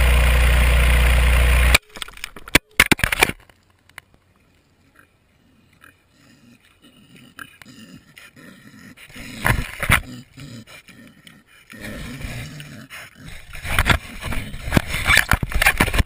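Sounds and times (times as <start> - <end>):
pig sniffing: 5.8 - 15.3.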